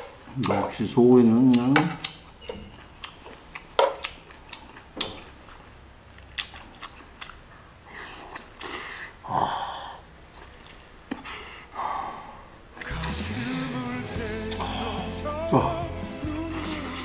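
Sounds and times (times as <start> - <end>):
chewing and mouth noises: 0.3 - 9.2, 10.0 - 11.9.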